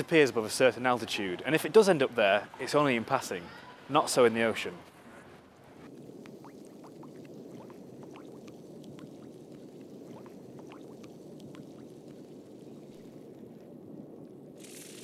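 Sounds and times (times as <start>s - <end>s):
low watery rumble: 5.8s - 14.6s
bubbling blips: 5.9s - 13.9s.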